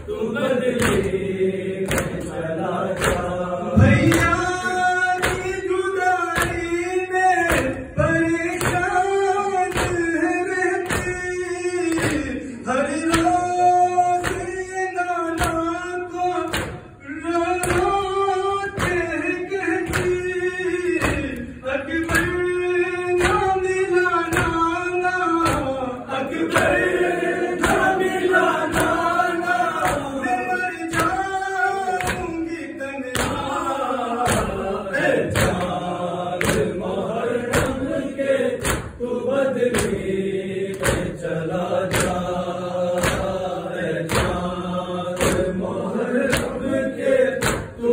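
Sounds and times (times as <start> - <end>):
men chanting: 0.0 - 47.9
rhythmic chest slapping: 0.0 - 47.9.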